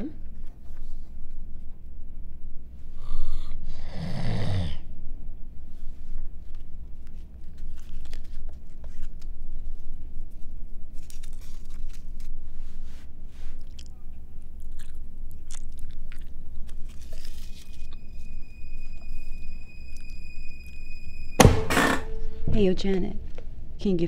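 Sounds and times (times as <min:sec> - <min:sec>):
gum chewing smacks and clicks: 0:13.5 - 0:18.0.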